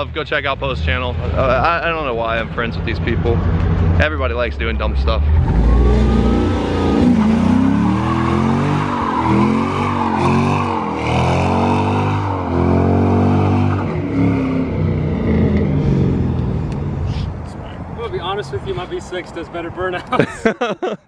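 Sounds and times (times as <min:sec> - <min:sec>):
car engine revving: 0:00.0 - 0:17.2
tyres squealing on pavement: 0:06.8 - 0:12.6.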